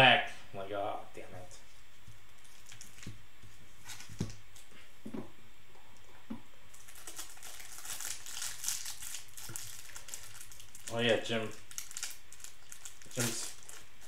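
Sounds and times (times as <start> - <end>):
plastic wrapper crinkling: 2.3 - 3.2, 6.7 - 14.0.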